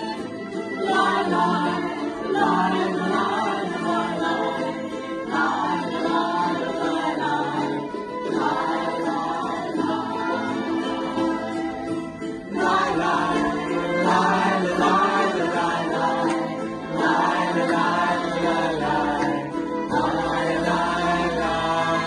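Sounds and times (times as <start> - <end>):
fiddle playing: 0.0 - 22.0
group of voices singing: 0.0 - 22.0
ukuleles and guitars strumming: 0.0 - 22.0.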